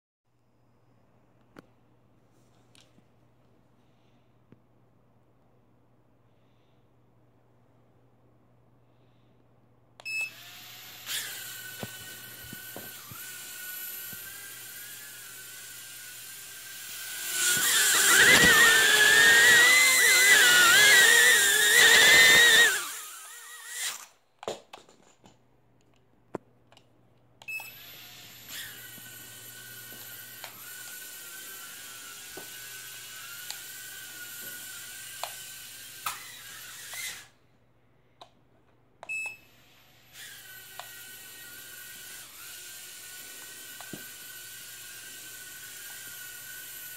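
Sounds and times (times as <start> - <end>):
drone propellers whining: 10.4 - 24.0.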